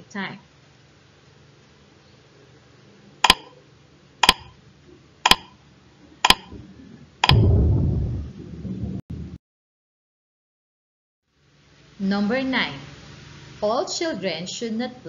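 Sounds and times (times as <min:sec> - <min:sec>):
timer ticking: 0:03.2 - 0:03.5, 0:04.2 - 0:04.6, 0:05.3 - 0:05.6, 0:06.2 - 0:06.6, 0:07.2 - 0:07.6
loud low sound: 0:06.4 - 0:09.4.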